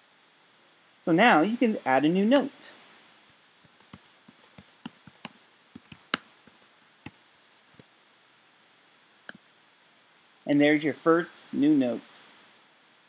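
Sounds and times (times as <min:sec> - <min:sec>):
typing on computer keyboard: 0:03.6 - 0:07.2.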